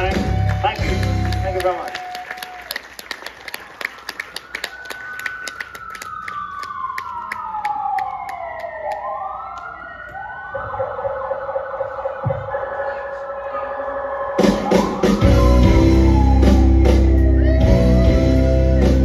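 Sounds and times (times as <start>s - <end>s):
siren-like sliding tone: 8.4s - 18.6s.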